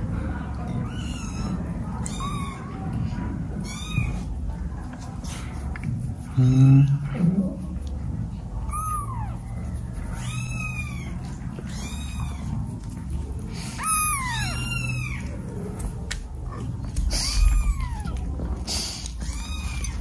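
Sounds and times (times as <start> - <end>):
kittens meowing: 0.7 - 4.3, 8.6 - 12.8, 13.7 - 15.8, 16.5 - 20.0.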